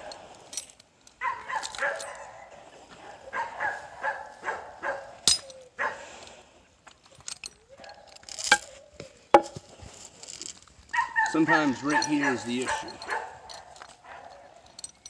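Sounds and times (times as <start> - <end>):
dog barking and whining: 1.2 - 6.0, 10.9 - 14.8
hammer striking steel chain: 5.3 - 5.6, 8.2 - 8.7.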